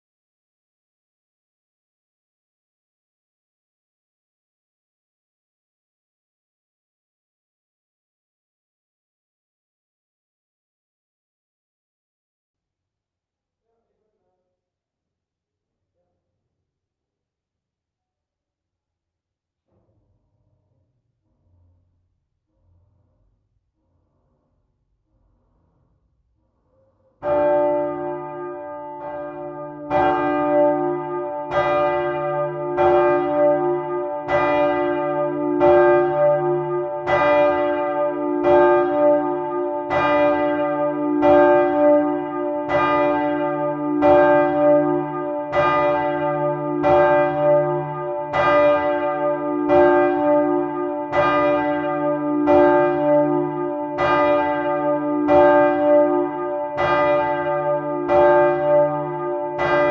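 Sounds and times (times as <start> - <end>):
church bell ringing: 27.2 - 59.9.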